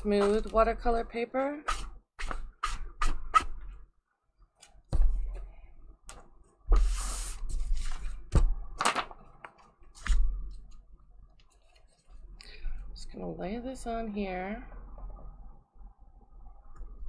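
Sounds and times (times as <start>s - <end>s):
paper rustling: 6.8s - 10.8s.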